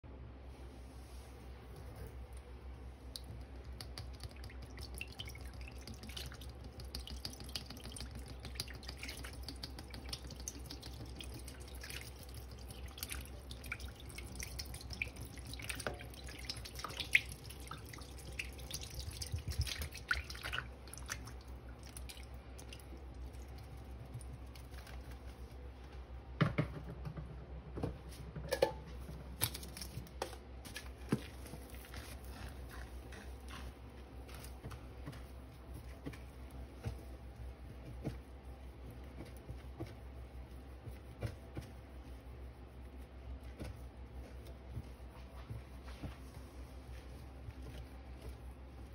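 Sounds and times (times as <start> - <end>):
steady low hum: 0.0 - 48.9
dripping: 2.3 - 25.5.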